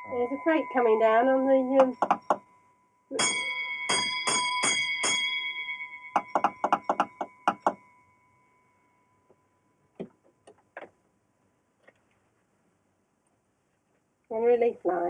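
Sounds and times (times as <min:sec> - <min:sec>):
signal bell ringing: 0:00.0 - 0:09.9.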